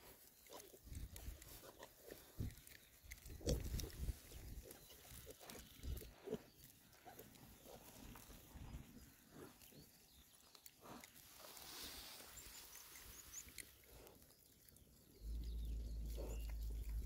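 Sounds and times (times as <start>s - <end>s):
piglets rooting in grass: 0.0s - 17.0s
low rumble on microphone: 15.2s - 17.0s.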